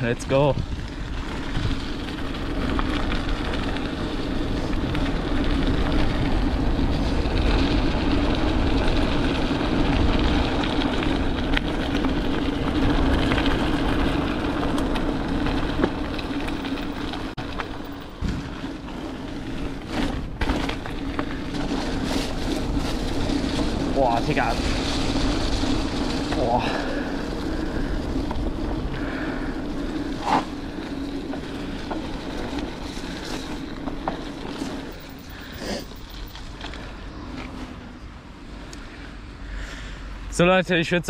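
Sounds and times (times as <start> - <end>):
wind on microphone: 0.0 - 10.6
bike rattling: 0.0 - 41.0
bike tyres rolling: 0.0 - 41.0.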